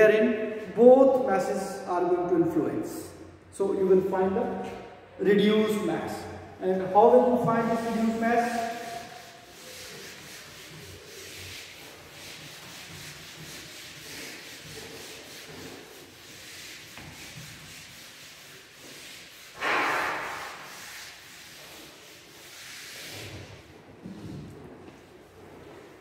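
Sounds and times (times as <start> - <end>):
eraser rubbing whiteboard: 6.9 - 23.7.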